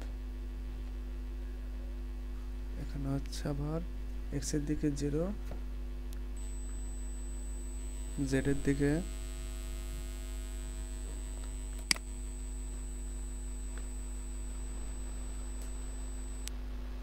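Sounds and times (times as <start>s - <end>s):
electrical mains hum: 0.0s - 17.0s
sharp click: 11.4s - 12.1s
faint ticks: 15.4s - 16.5s.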